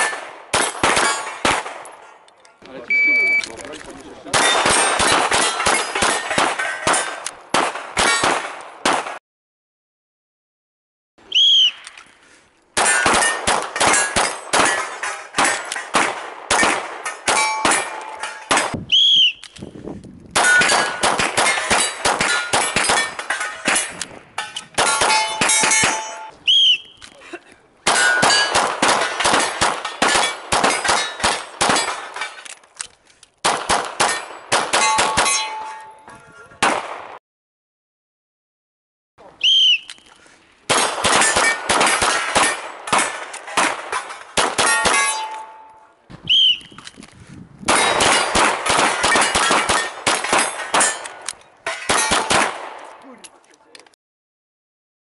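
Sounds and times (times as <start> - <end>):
pistol shots: 0.0 - 2.1, 4.3 - 9.2, 12.8 - 18.8, 20.4 - 24.0, 24.8 - 26.3, 27.9 - 32.3, 33.4 - 35.7, 36.6 - 37.2, 40.7 - 45.5, 47.7 - 53.0
steel targets clanging: 0.0 - 3.6, 4.3 - 7.2, 12.8 - 18.8, 20.4 - 26.4, 27.9 - 32.5, 34.0 - 36.1, 41.1 - 46.0, 47.7 - 52.3.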